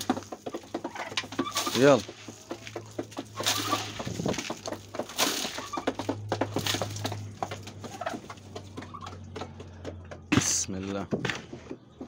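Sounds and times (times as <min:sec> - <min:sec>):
rustling: 0:00.0 - 0:08.7
soft bird calls: 0:06.7 - 0:10.3.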